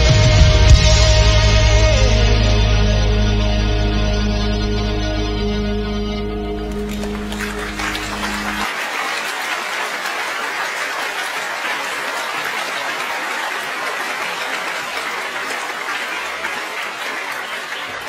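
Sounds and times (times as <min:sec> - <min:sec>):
backing music held note: 0:05.6 - 0:08.7
audience clapping: 0:06.6 - 0:18.0.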